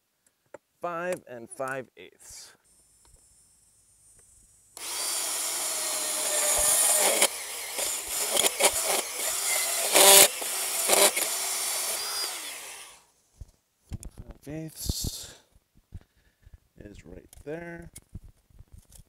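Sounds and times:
band saw cutting metal tube: 4.8 - 13.0.

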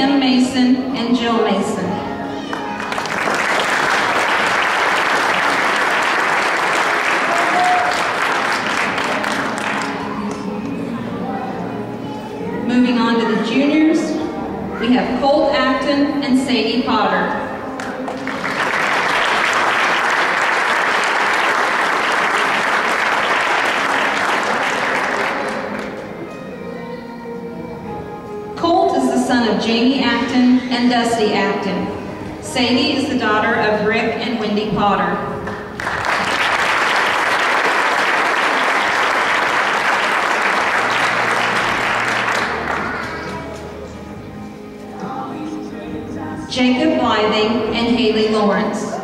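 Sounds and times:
audience applauding: 2.5 - 10.4, 17.8 - 26.1, 35.5 - 43.6.

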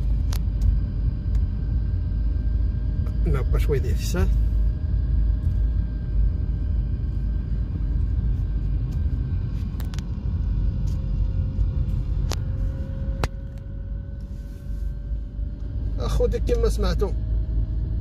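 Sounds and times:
car engine and road rumble: 0.0 - 18.0
faint engine whine: 0.0 - 18.0.

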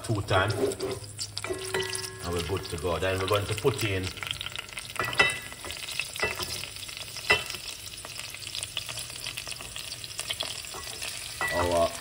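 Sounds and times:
food sizzling in hot oil: 0.0 - 12.0
spatula scraping a bowl: 0.4 - 1.8.

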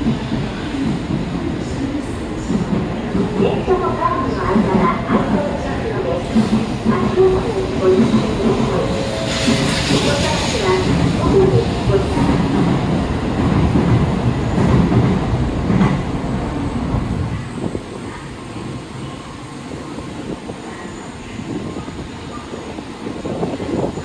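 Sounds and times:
train rumble: 0.0 - 24.0.

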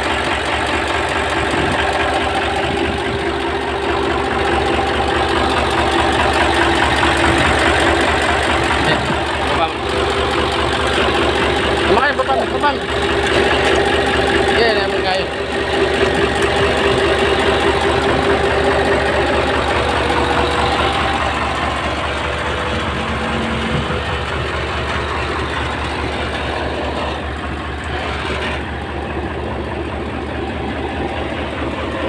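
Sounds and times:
diesel engine idling: 0.0 - 32.0
engine whine: 0.0 - 32.0.

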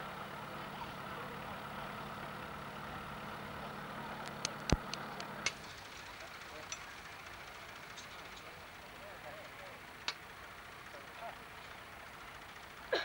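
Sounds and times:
tractor engine idling: 0.0 - 13.0.

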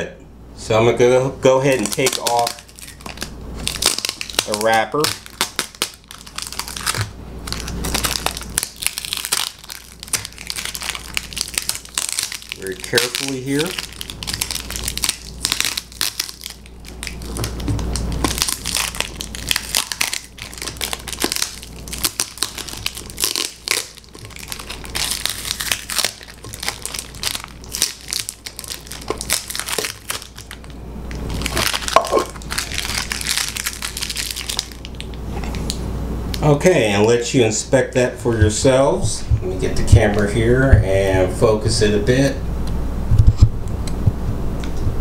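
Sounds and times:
plastic wrapper crinkling: 1.6 - 35.8.

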